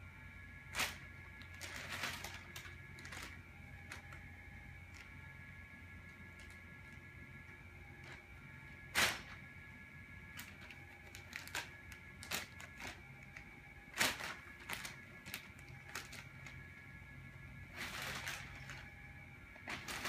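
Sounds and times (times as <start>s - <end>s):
plastic bag crinkling: 0.7s - 5.3s, 10.3s - 16.9s, 17.6s - 20.0s.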